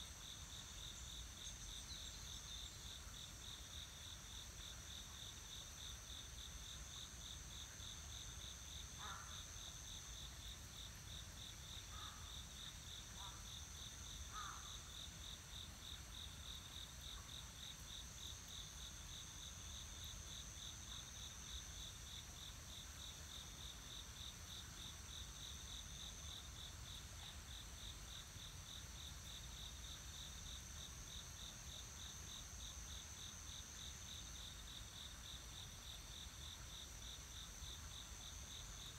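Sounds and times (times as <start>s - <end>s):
insects pulsing chirp: 0.0s - 38.9s
low insect calls: 0.0s - 38.9s.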